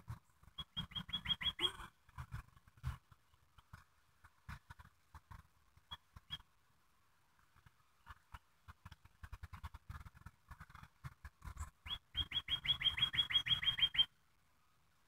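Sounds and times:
bird chirping: 0.1 - 3.7, 5.8 - 6.5, 11.4 - 14.2.

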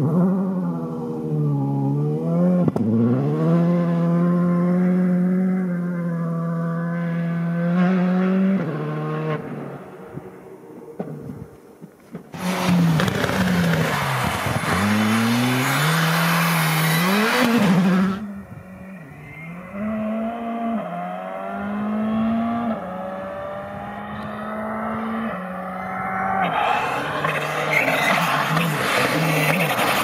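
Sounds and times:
rally car engine revving: 0.0 - 9.8, 12.4 - 30.0
tyre and road noise: 6.9 - 30.0.

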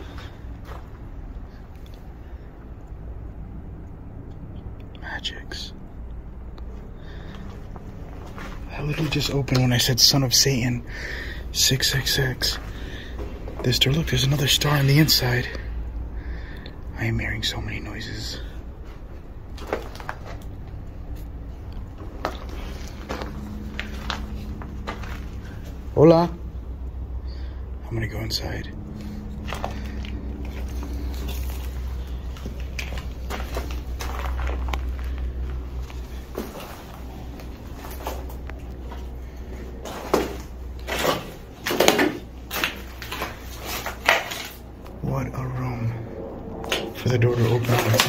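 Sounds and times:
faint steady hum: 0.0 - 48.0
low steady rumble: 0.0 - 48.0.

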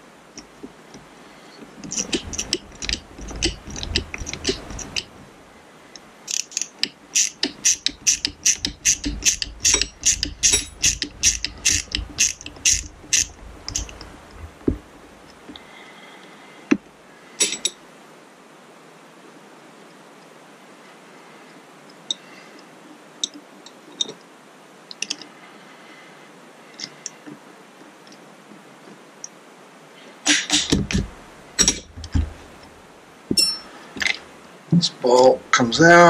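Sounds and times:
sharp metallic knocks: 1.8 - 5.1, 6.3 - 14.0, 17.4 - 17.8, 30.3 - 32.3, 33.3 - 33.7
socket ratchet clicking: 1.9 - 5.1, 6.3 - 14.0.

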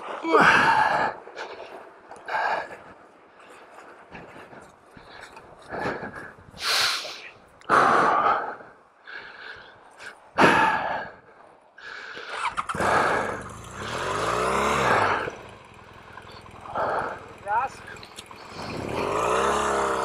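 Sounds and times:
motorcycle engine revving: 12.4 - 20.0.

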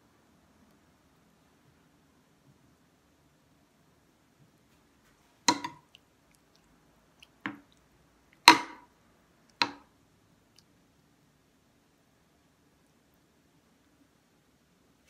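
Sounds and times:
metal ladle clinking against glass dish: 5.5 - 5.8.

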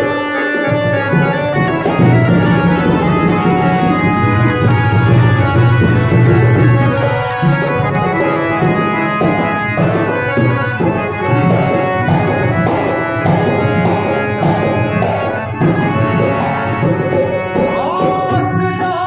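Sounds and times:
harmonium melody: 0.0 - 19.0
percussion beat: 0.0 - 19.0
person singing: 17.5 - 19.0.

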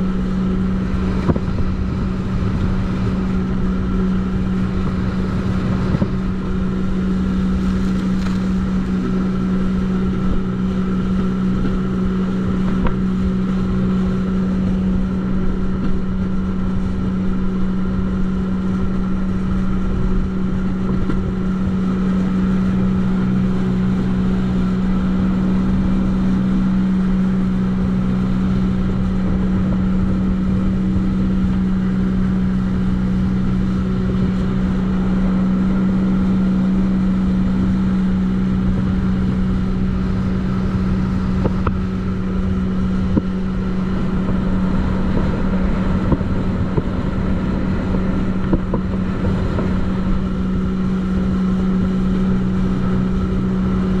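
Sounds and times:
jet ski engine drone: 0.0 - 54.0.

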